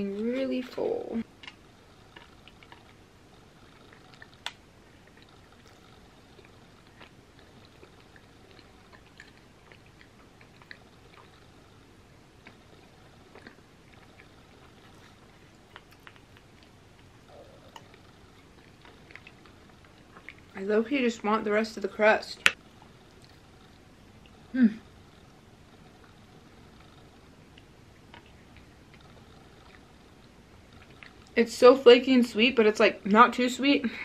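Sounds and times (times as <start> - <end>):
chewing pie: 0.0 - 31.8.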